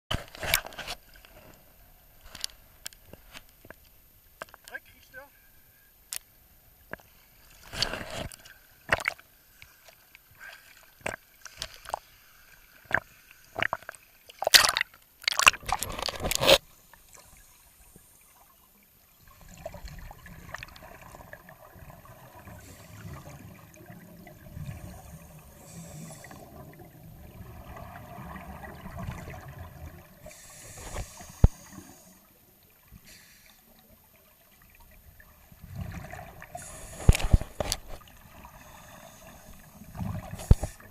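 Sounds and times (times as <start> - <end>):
water sloshing and splashing: 6.9 - 17.2
gurgling bubbles: 13.6 - 16.6.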